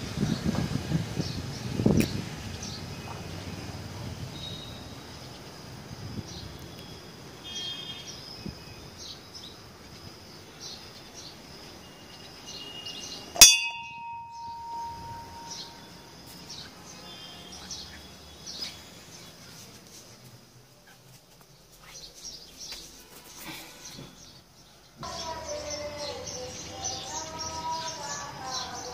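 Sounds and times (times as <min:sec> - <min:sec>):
birds chirping: 0:04.4 - 0:19.6
temple bell clang: 0:13.4 - 0:15.9.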